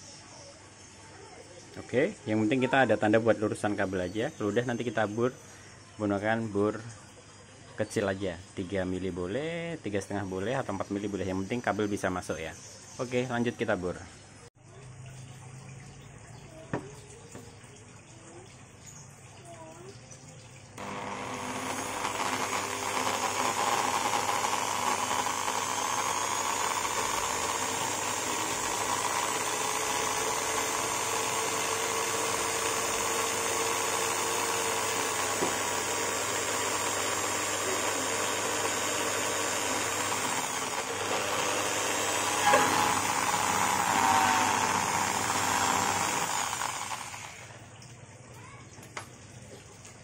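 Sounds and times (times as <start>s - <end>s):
electric drill boring: 20.8s - 47.6s.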